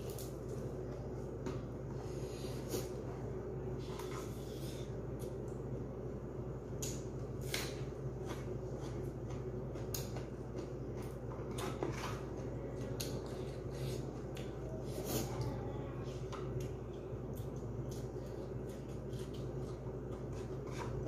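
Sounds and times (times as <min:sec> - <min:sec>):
steady low hum: 0:00.0 - 0:21.0
person chewing crunchy greens: 0:16.6 - 0:21.0.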